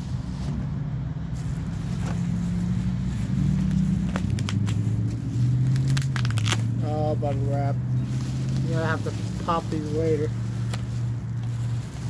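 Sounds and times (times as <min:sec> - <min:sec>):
plastic packaging crinkling: 0:01.4 - 0:12.0
sharp crackles: 0:03.2 - 0:12.0.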